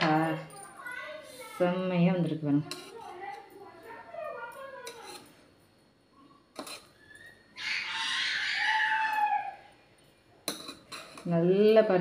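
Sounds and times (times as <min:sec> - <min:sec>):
chicken calling: 0:07.0 - 0:09.7.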